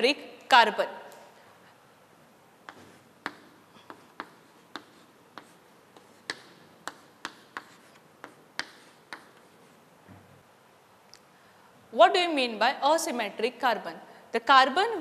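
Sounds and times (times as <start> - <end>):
chalk tapping on chalkboard: 2.6 - 10.4.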